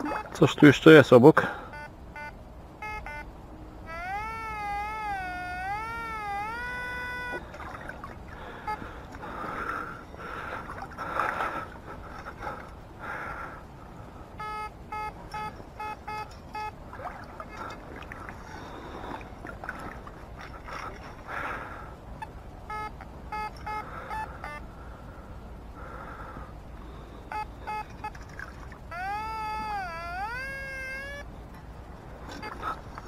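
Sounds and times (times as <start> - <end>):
water sloshing and gurgling: 0.0 - 0.5, 7.2 - 13.5, 16.1 - 22.2, 27.6 - 28.9, 32.0 - 33.0
metal detector beeps: 1.7 - 3.3, 14.4 - 16.8, 22.7 - 24.6, 27.3 - 28.2, 28.9 - 31.2
wavering gliding tone: 3.9 - 8.8, 27.3 - 31.3.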